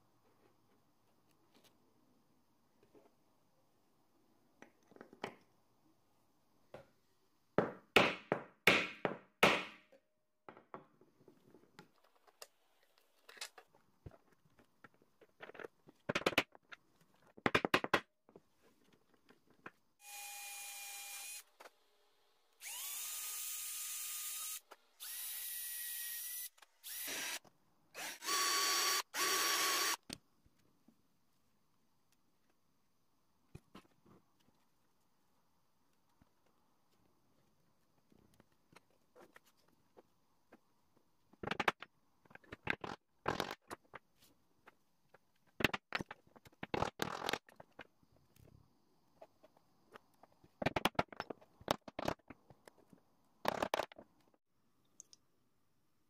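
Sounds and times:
small electric drill running: 0:20.0 - 0:21.5, 0:22.6 - 0:27.4, 0:28.0 - 0:30.0.

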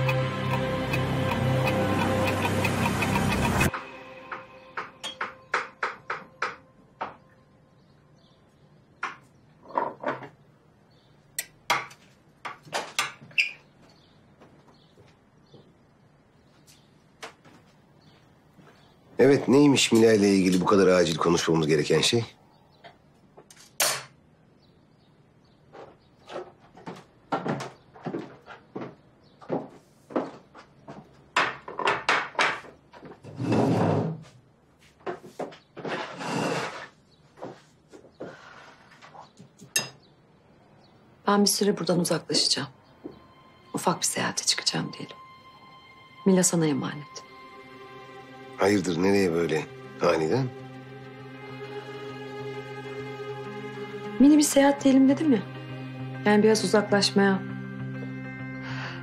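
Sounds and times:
plates knocking on table: 0:09.0 - 0:10.4, 0:31.4 - 0:32.8
chair scraping: 0:32.9 - 0:39.7.

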